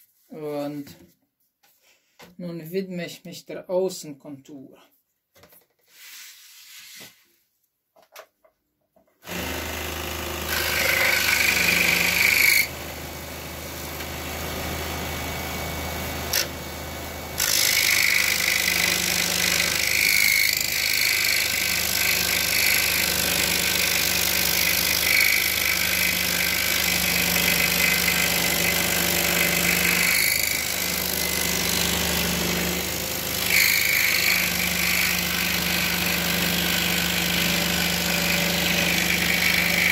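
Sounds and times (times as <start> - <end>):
saw rasping through wood: 9.2 - 39.9
scroll saw humming: 9.2 - 39.9.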